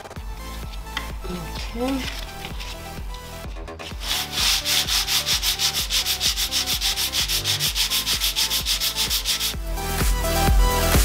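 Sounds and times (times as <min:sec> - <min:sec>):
sandpaper rubbing on wood: 0:03.8 - 0:09.6.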